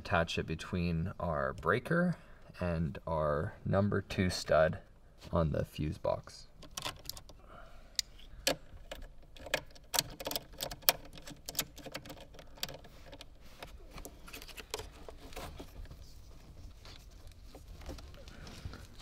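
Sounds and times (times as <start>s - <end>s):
socket ratchet clicking: 6.6s - 7.4s, 8.0s - 13.3s
handling noise: 8.0s - 19.0s.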